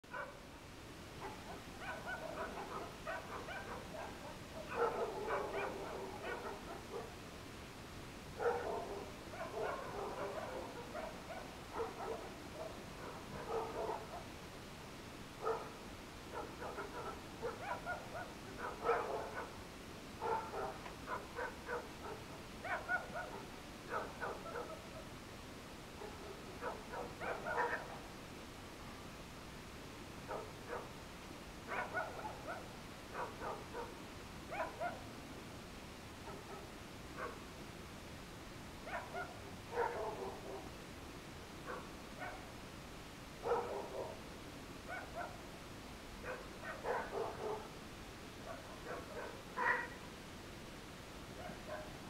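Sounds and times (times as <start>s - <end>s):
background hiss: 0.0s - 52.0s
dogs barking: 0.1s - 0.4s, 1.2s - 7.2s, 8.4s - 14.3s, 15.4s - 19.6s, 20.2s - 25.0s, 26.0s - 28.0s, 30.3s - 31.0s, 31.7s - 35.1s, 36.2s - 37.4s, 38.8s - 40.7s, 41.6s - 42.5s, 43.4s - 44.2s, 44.9s - 45.5s, 46.2s - 47.8s, 48.4s - 50.0s, 51.4s - 52.0s.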